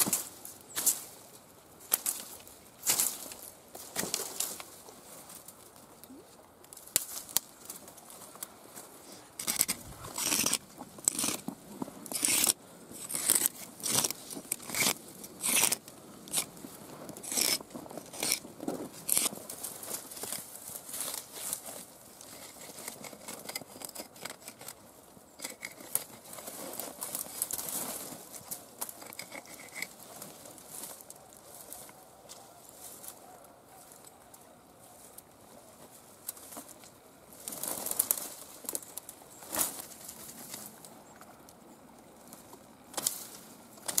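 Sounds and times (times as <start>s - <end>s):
rustling among dry canes: 1.8s - 5.9s, 6.7s - 41.0s
shell sawing through cane: 9.4s - 16.5s, 17.2s - 18.4s, 19.0s - 19.4s, 22.2s - 24.8s, 25.4s - 27.5s, 28.8s - 30.0s.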